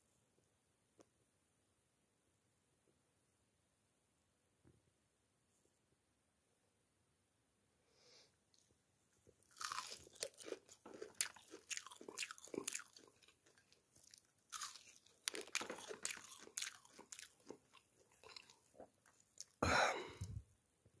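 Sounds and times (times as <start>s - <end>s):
crunching fried fish: 9.4s - 19.6s.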